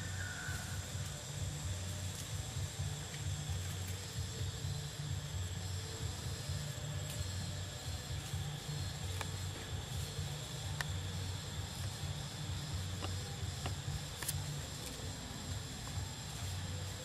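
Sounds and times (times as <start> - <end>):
high insect drone: 0.0 - 17.0.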